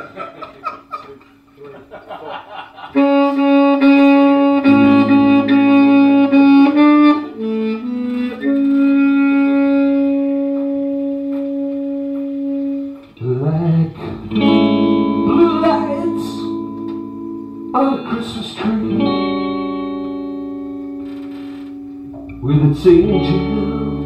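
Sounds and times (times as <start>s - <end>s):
saxophone long held notes: 3.0s - 24.0s.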